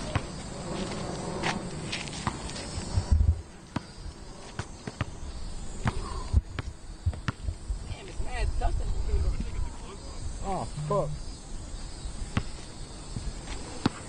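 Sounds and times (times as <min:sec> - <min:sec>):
background hiss: 0:00.0 - 0:14.0
basketball bouncing on asphalt: 0:02.2 - 0:02.4, 0:03.8 - 0:05.2, 0:05.8 - 0:07.6.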